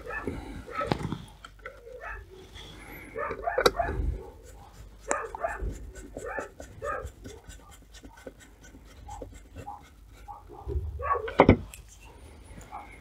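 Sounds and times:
screwdriver scraping screws: 3.6s - 10.4s.

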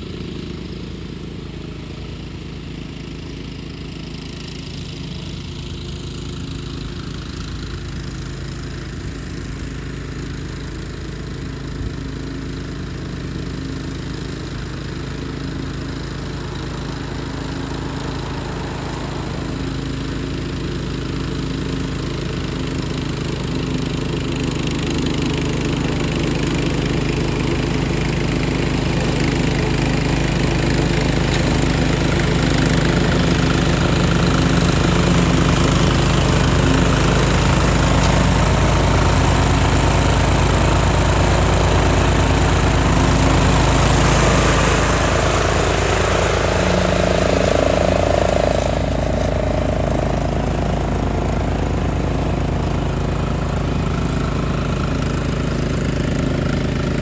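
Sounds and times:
lawn mower cutting grass: 0.0s - 57.0s.

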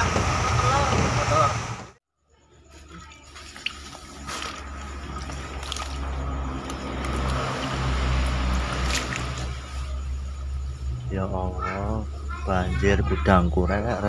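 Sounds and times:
floodwater sloshing and trickling: 2.7s - 11.1s.

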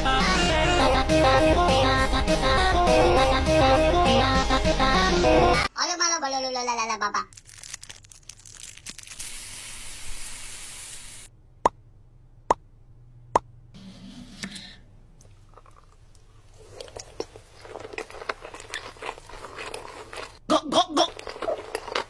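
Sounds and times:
crunching and chewing: 7.3s - 9.2s, 15.2s - 20.4s, 21.0s - 22.0s
rice bag hissing: 8.6s - 11.3s.

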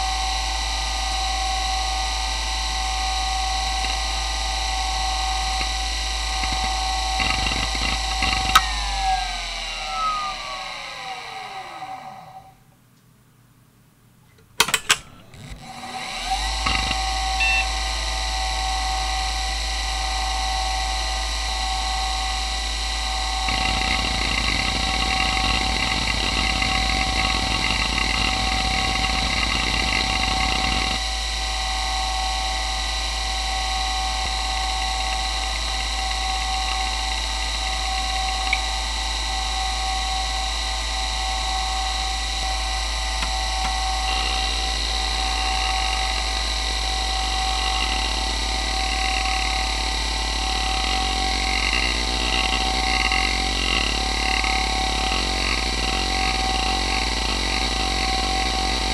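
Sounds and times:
hard drive spinning whine: 0.0s - 12.8s, 14.4s - 58.9s
hard drive clicks: 5.4s - 9.2s, 23.5s - 31.0s.

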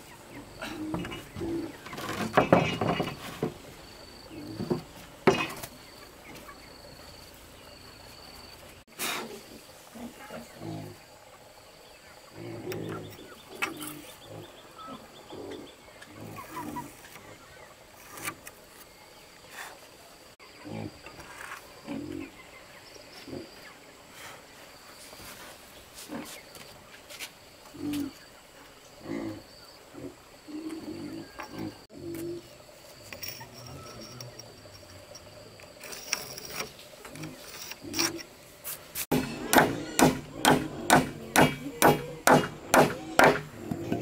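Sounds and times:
wooden planks knocking: 1.9s - 3.6s, 39.1s - 44.0s.

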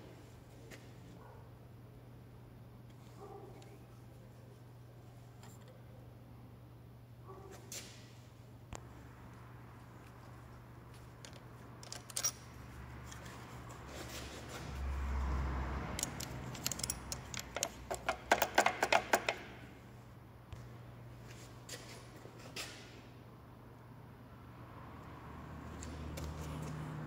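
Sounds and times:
ratchet wrench clicking: 15.9s - 19.4s.

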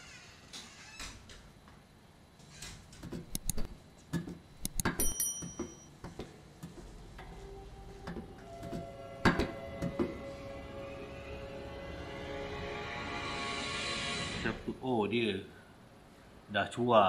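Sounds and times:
short metallic ring: 5.0s - 5.9s.

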